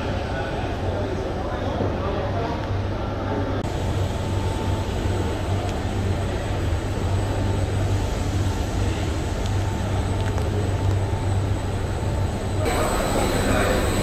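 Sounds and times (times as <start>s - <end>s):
train equipment humming: 3.6s - 14.0s.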